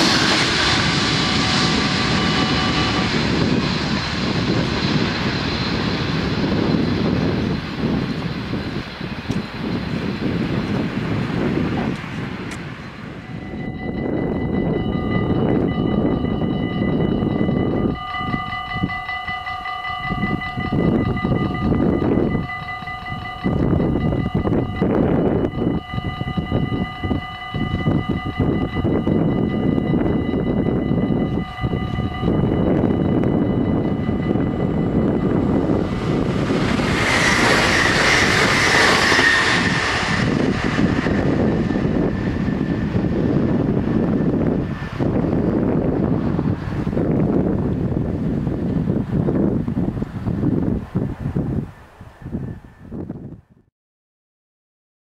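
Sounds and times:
gusty low rumble: 0.0s - 19.1s, 20.0s - 53.7s
train passing at speed: 0.0s - 53.2s
level crossing bells ringing: 13.2s - 36.3s.

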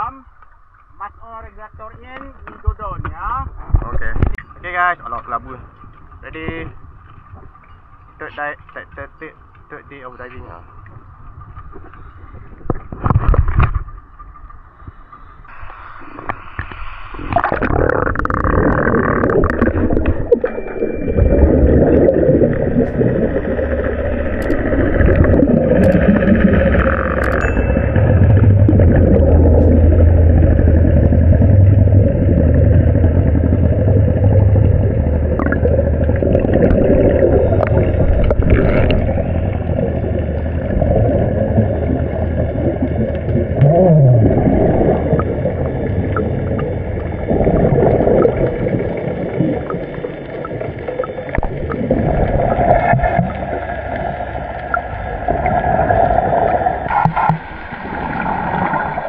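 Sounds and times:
bubbles gurgling underwater: 17.2s - 59.0s
low engine hum: 22.3s - 47.2s.

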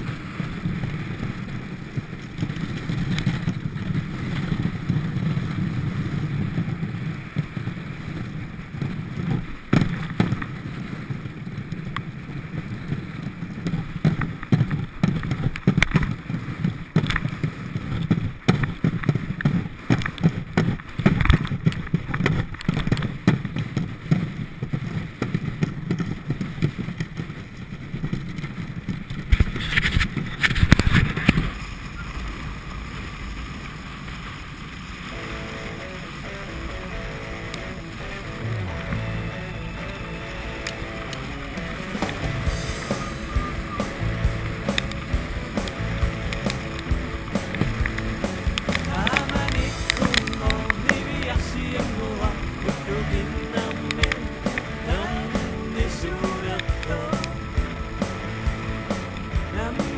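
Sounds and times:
sled runners scraping over ice: 0.0s - 59.9s
wind buffeting: 0.0s - 59.9s
music: 35.2s - 59.9s.

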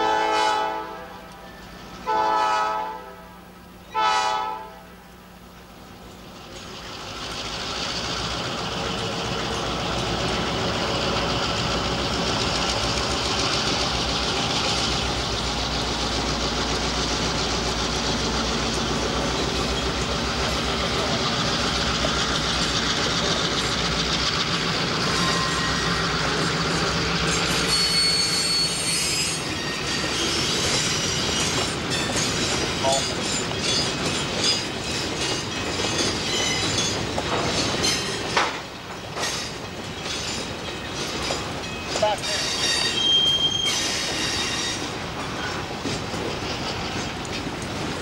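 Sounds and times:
diesel locomotive engine hum: 0.0s - 48.0s
wheel and rail noise: 4.8s - 48.0s
wheels squealing: 6.4s - 48.0s
high-pitched flange squeal: 25.0s - 35.0s, 42.2s - 45.6s.

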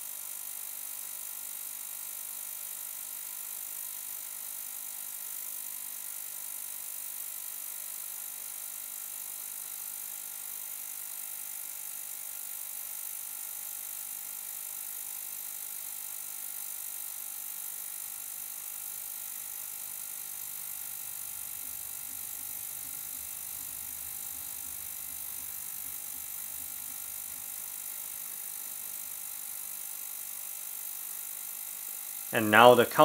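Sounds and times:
ultrasonic cleaner buzzing: 16.4s - 33.0s.

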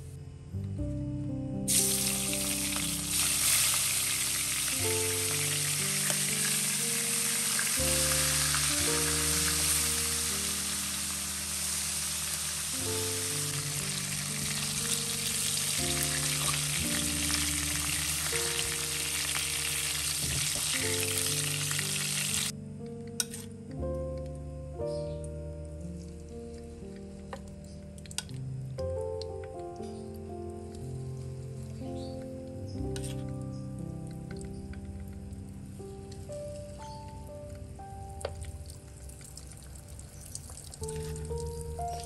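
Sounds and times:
shrimp sizzling in hot oil: 1.7s - 22.5s, 36.4s - 42.0s.

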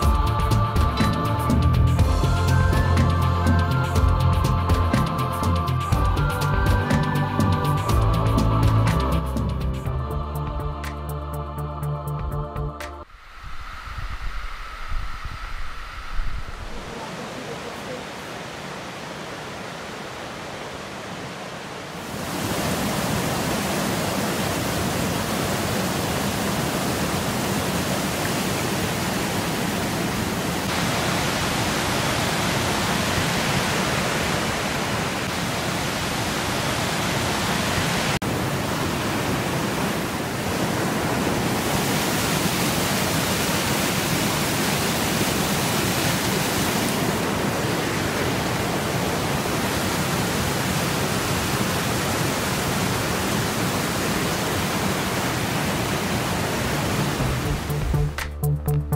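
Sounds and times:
creek rushing over boulders: 13.1s - 58.2s.

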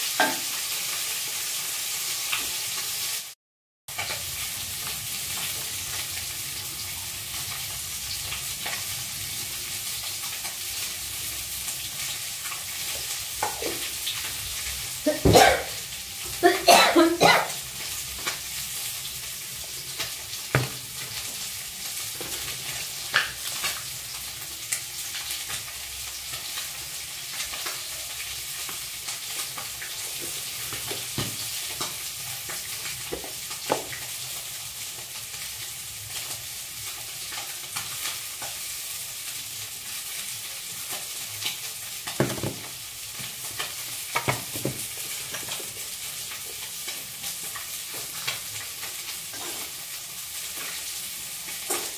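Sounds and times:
oil sizzling in a wok: 0.0s - 51.9s.

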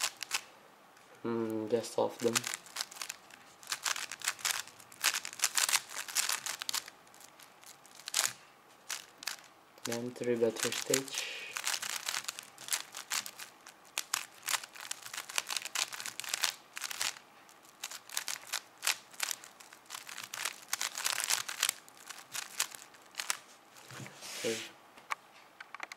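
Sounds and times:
puzzle cube clicking: 0.0s - 0.4s, 2.2s - 6.9s, 7.9s - 23.4s.

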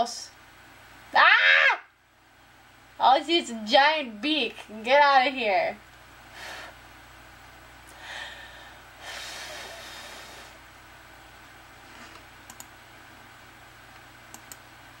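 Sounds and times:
faint sharp clicks: 12.4s - 12.7s, 13.9s - 14.6s.

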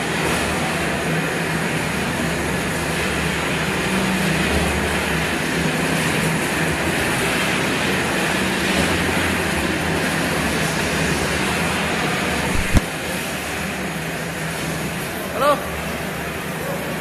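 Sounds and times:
machinery motor hum: 11.5s - 12.8s.

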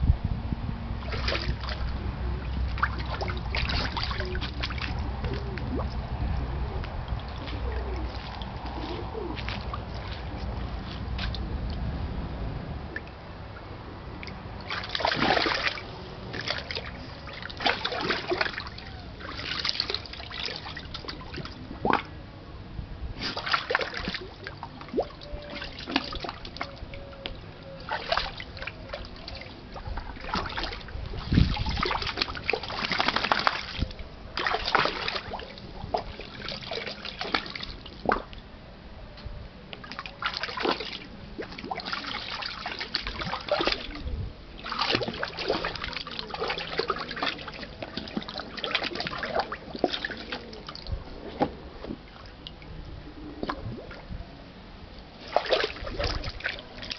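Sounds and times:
dog splashing water: 2.6s - 5.8s, 14.6s - 22.1s, 23.2s - 26.7s, 27.8s - 38.2s, 39.9s - 44.0s, 44.6s - 50.9s, 55.2s - 56.9s.

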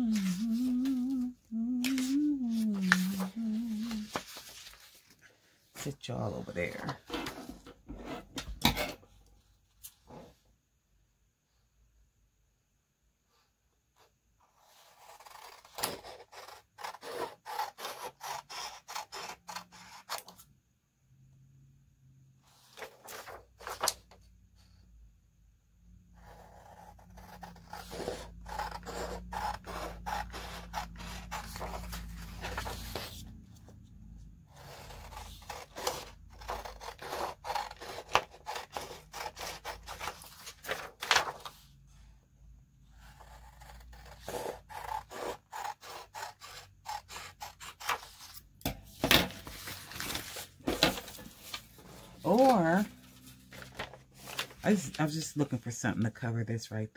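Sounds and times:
paper sheets rustling and sliding: 1.8s - 5.2s, 30.3s - 33.3s, 40.0s - 41.6s, 48.9s - 55.0s.

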